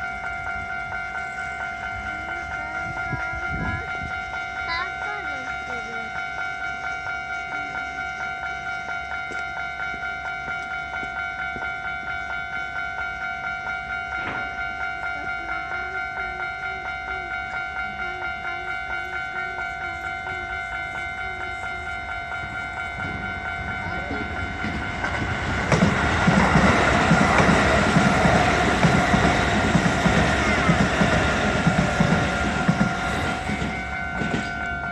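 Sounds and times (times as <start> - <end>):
level-crossing warning bell: 0.0 - 34.9
train passing loudly: 0.0 - 34.9.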